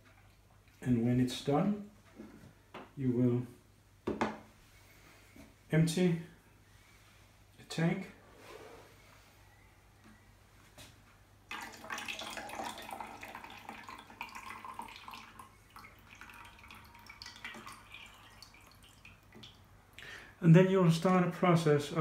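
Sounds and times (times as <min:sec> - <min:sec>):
liquid pouring into a jug: 0:11.5 - 0:19.6
liquid dripping: 0:11.5 - 0:20.0.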